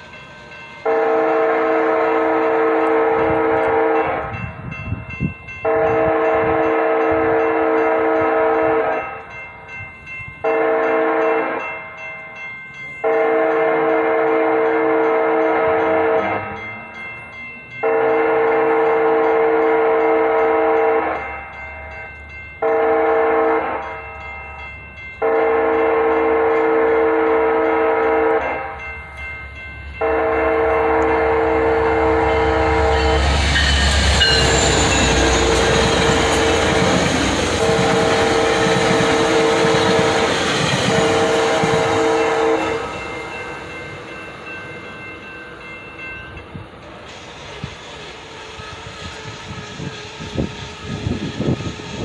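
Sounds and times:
train rumbling and clattering: 0:00.0 - 0:52.0
train horn blasts: 0:00.8 - 0:04.5, 0:05.6 - 0:09.2, 0:10.4 - 0:11.7, 0:13.0 - 0:16.6, 0:17.8 - 0:21.3, 0:22.6 - 0:23.9, 0:25.2 - 0:28.8, 0:30.0 - 0:43.4.

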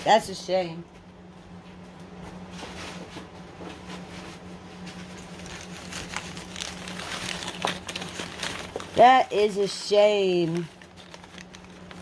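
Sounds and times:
steady low hum: 0:00.0 - 0:12.0
packing paper rustling and crinkling: 0:03.9 - 0:12.0.

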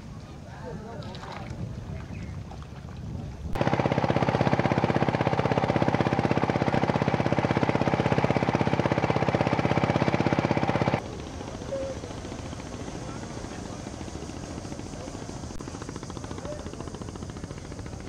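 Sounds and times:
boat engine thumping: 0:03.6 - 0:11.5.

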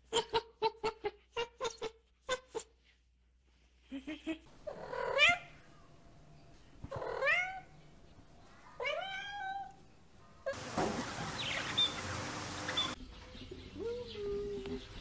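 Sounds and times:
cat meowing: 0:06.9 - 0:07.7, 0:08.8 - 0:09.8
steady hiss: 0:10.6 - 0:13.0.

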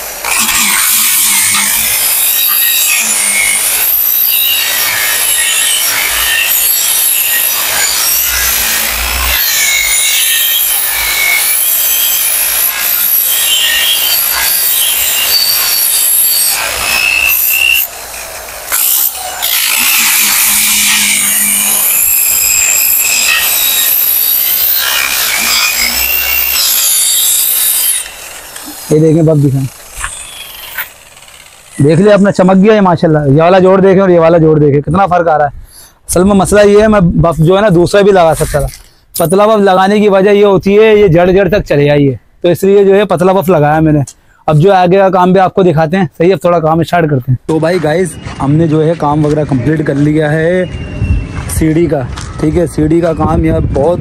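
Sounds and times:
angle grinder buffing metal: 0:00.0 - 0:33.1.

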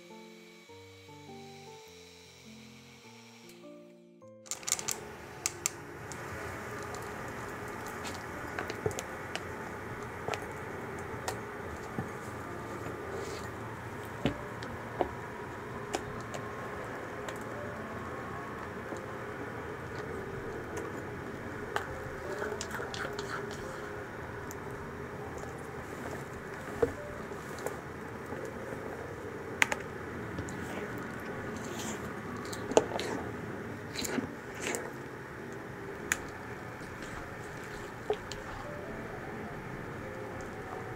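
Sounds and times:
whisk stirring batter: 0:22.1 - 0:24.7, 0:36.1 - 0:38.6.

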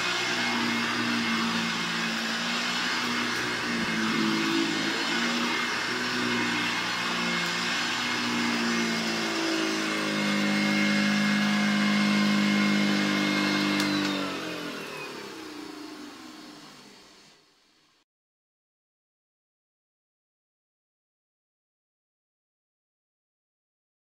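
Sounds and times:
vacuum motor winding down: 0:00.0 - 0:17.4
vacuum cleaner running: 0:00.0 - 0:17.9.

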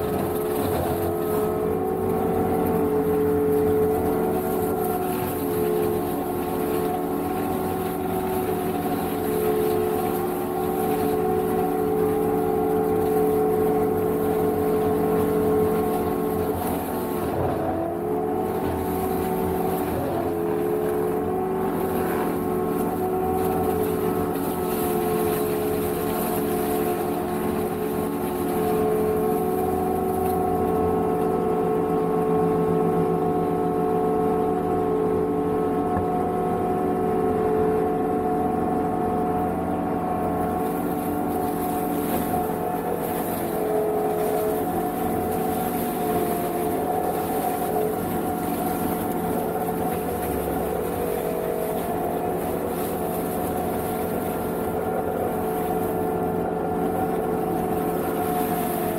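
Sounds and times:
mower engine droning: 0:00.0 - 0:58.9.

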